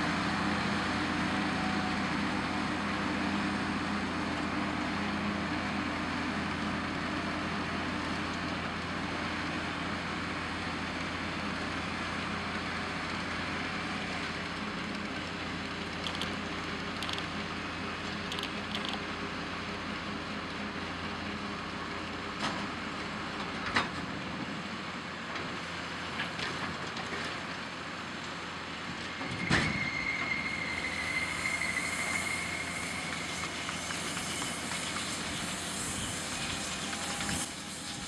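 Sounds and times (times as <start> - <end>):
tractor engine running: 10.7 - 24.2.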